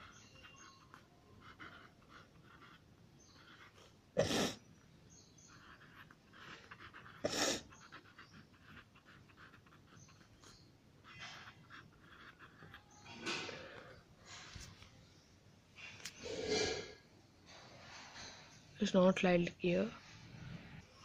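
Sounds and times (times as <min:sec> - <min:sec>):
pen scratching on paper: 0:00.0 - 0:14.7.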